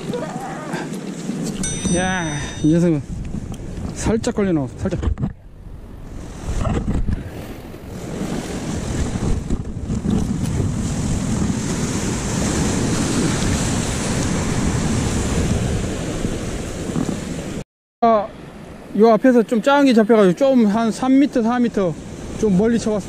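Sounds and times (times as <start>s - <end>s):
wind buffeting microphone: 0.0s - 17.6s
surf washing against rocks: 6.2s - 17.6s.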